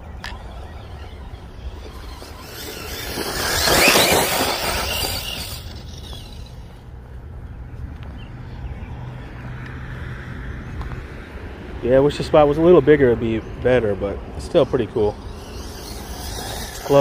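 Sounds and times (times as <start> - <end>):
electric motor whine: 0.0 - 6.7, 14.7 - 17.0.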